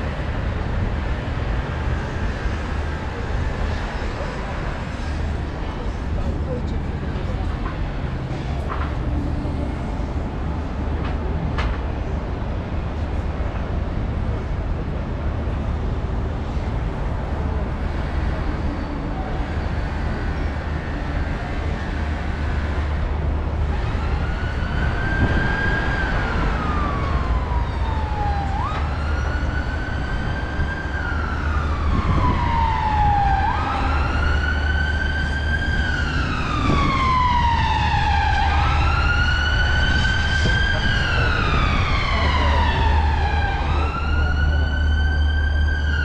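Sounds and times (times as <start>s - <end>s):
city traffic rumble: 0.0s - 46.0s
emergency vehicle siren wailing: 19.0s - 46.0s.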